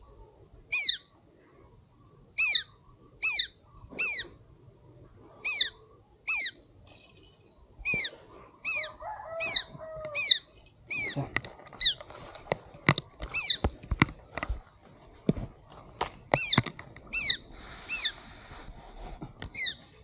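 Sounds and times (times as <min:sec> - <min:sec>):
shrill bird call sliding downward: 0:02.4 - 0:04.3, 0:05.4 - 0:06.6, 0:07.8 - 0:11.2, 0:16.4 - 0:18.2, 0:19.5 - 0:19.8.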